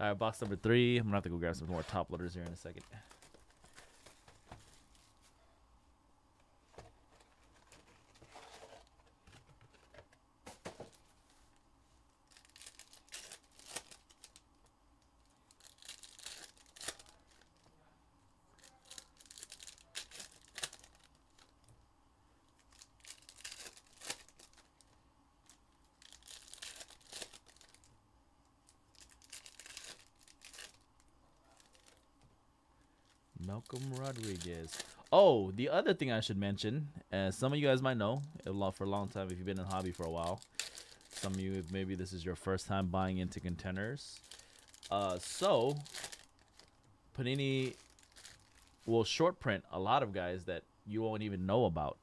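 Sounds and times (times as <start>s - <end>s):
card pack wrappers tearing: 12.3s - 14.5s, 15.2s - 17.7s, 18.6s - 21.5s, 22.5s - 27.9s, 28.9s - 32.1s, 33.4s - 35.2s, 37.6s - 42.0s, 43.3s - 48.9s.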